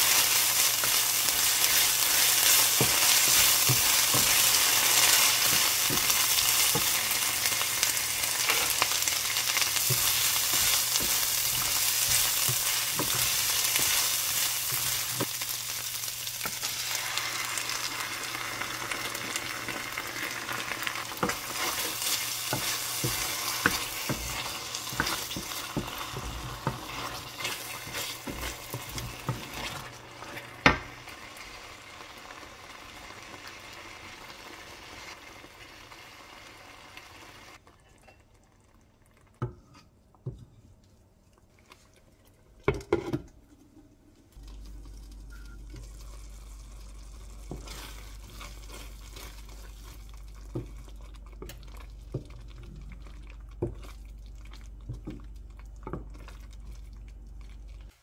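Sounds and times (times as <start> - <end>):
wooden spatula scraping a pan: 0.0 - 15.4, 20.4 - 30.8, 47.4 - 51.5
sauce simmering: 0.0 - 37.6, 44.1 - 58.0
tomato puree sizzling in a pan: 0.0 - 37.6, 44.3 - 56.9.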